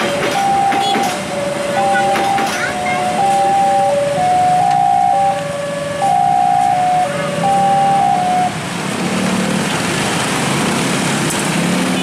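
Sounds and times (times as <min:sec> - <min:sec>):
level crossing alarm chime: 0:00.0 - 0:05.4, 0:06.0 - 0:08.4
motorcycle engines: 0:00.0 - 0:12.0.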